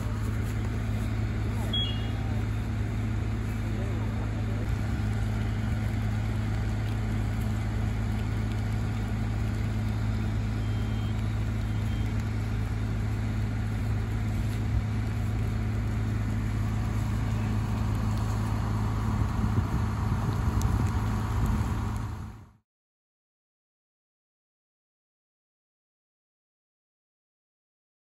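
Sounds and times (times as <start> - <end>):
fire engine idling hum: 0.0 - 22.6.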